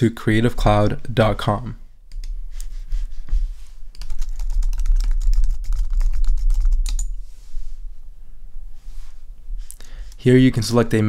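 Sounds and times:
computer keyboard typing: 3.9s - 7.1s.

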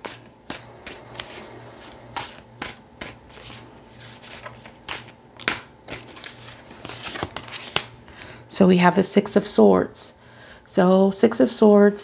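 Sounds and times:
cards being shuffled: 0.0s - 8.0s.

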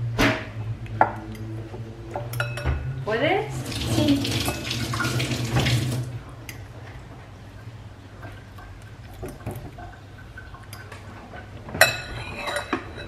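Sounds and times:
fork scraping in a ceramic bowl: 12.0s - 13.0s.

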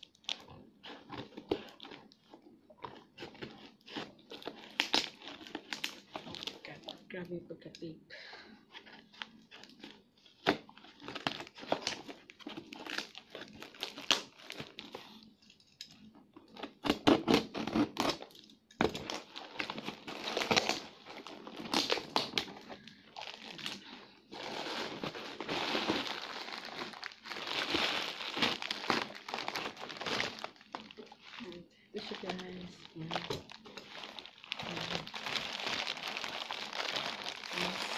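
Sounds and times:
plastic bag crinkling: 0.0s - 7.2s, 8.7s - 15.6s, 17.8s - 37.9s
scissors cutting plastic: 2.8s - 6.8s, 8.8s - 22.7s, 24.9s - 31.4s
packing tape ripping: 3.2s - 6.6s, 9.2s - 14.9s, 16.6s - 23.8s, 24.4s - 31.4s.

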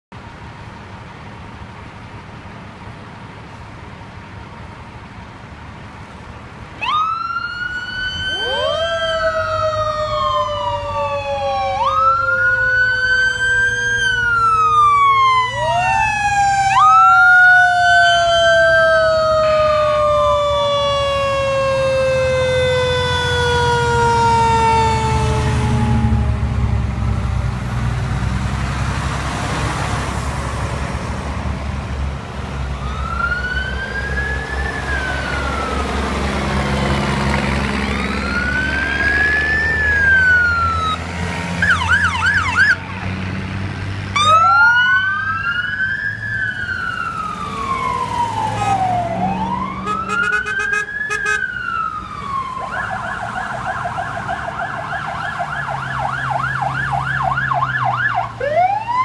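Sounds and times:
heavy trucks engine rumble: 0.1s - 59.0s
siren wailing and yelping: 6.8s - 26.7s, 32.8s - 36.0s, 37.8s - 41.0s, 41.6s - 43.0s, 44.2s - 59.0s.

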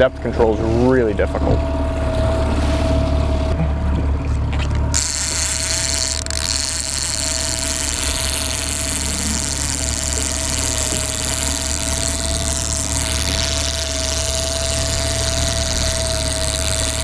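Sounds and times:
boat motors humming: 0.0s - 17.0s
wind and water hiss: 4.9s - 17.0s.

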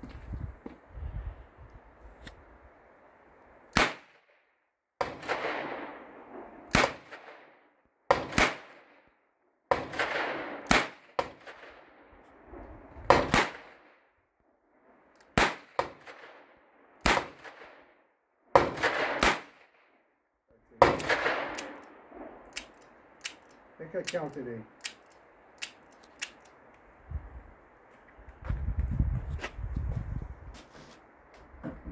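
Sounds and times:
revolver gunshots: 3.8s - 4.3s, 5.0s - 7.5s, 8.1s - 8.9s, 9.7s - 11.8s, 13.1s - 13.9s, 15.4s - 17.8s, 18.5s - 19.8s, 20.8s - 22.7s.

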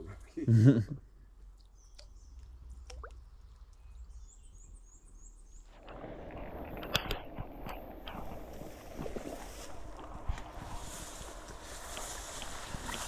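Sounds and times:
bird chirping: 1.5s - 5.7s
rushing wind and water: 5.8s - 13.0s.

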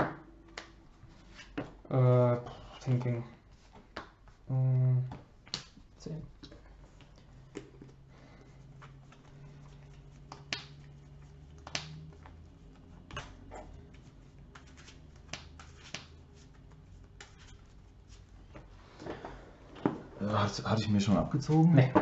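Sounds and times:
low room hum: 0.0s - 22.0s
trading cards clicking on table: 10.0s - 12.4s, 14.5s - 16.2s.

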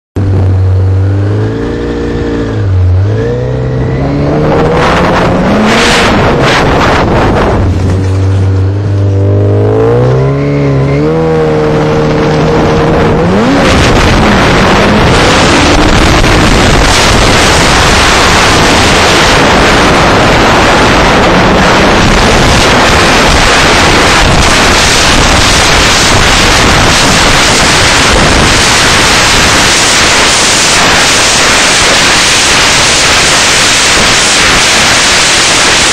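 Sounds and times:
snowmobile engine running: 0.2s - 35.9s
wind blasting over microphone: 0.2s - 35.9s.

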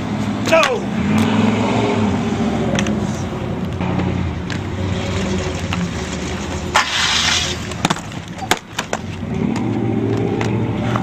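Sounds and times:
skate wheels rolling on pavement: 0.0s - 11.0s
skates clacking on ground: 0.4s - 0.8s, 3.6s - 11.0s.

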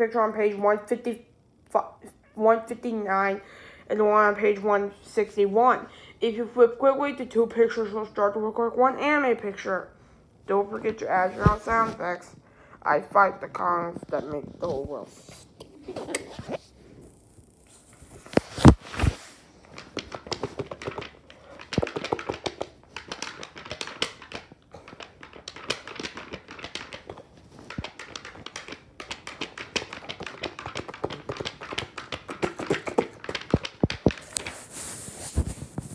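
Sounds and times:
book pages flipping: 11.2s - 12.1s, 17.7s - 35.9s.

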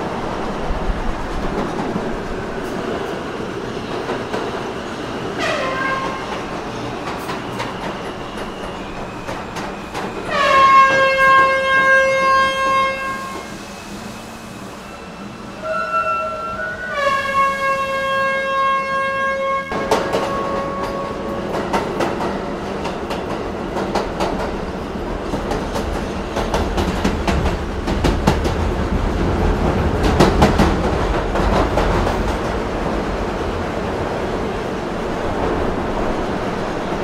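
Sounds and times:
low train rumble: 0.0s - 37.0s
train horn: 5.4s - 6.4s, 10.3s - 13.6s, 15.6s - 21.5s
train wheels clattering over rails: 19.7s - 37.0s.

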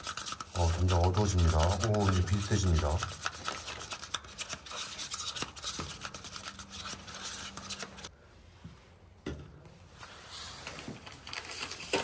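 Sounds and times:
stick scraping paper cup: 0.0s - 8.1s.

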